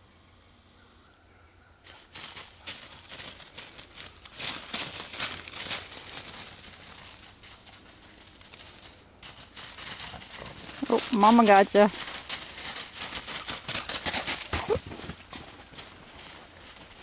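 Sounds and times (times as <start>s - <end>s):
footsteps crunching through snow: 1.9s - 17.0s.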